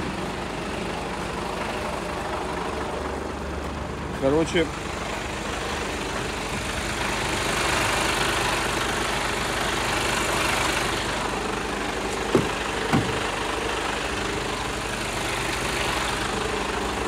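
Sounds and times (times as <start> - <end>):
truck engine and road noise: 0.0 - 17.0
short knocks: 12.3 - 13.3.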